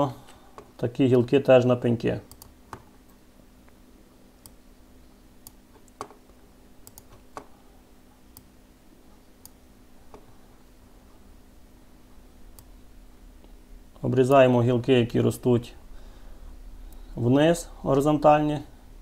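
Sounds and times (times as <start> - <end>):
faint steady hum: 0.0 - 19.0
computer mouse clicking: 2.3 - 2.9, 5.4 - 6.2, 6.8 - 7.5.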